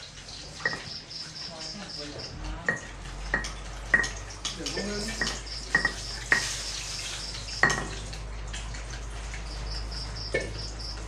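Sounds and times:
pestle knocking in mortar: 0:02.7 - 0:06.5.

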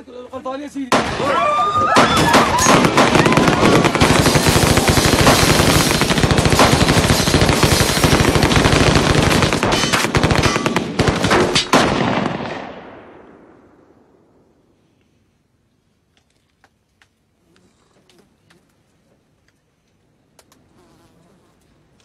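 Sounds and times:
automatic gunfire: 0:02.0 - 0:13.0.

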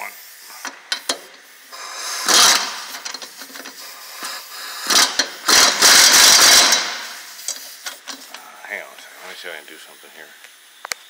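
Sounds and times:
impact wrench hammering: 0:02.1 - 0:03.8, 0:04.8 - 0:08.2.

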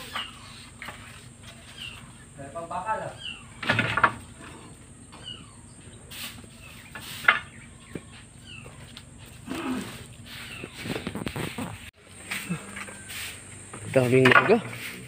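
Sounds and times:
leaves and stalks rustling: 0:00.0 - 0:03.4, 0:06.0 - 0:15.0
birds calling: 0:00.0 - 0:15.0.

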